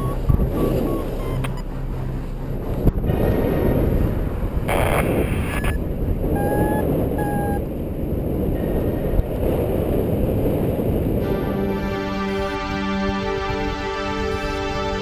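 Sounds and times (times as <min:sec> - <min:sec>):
short rising beeps: 0:00.0 - 0:01.7, 0:06.4 - 0:07.6
wind rushing over microphone: 0:00.0 - 0:15.0.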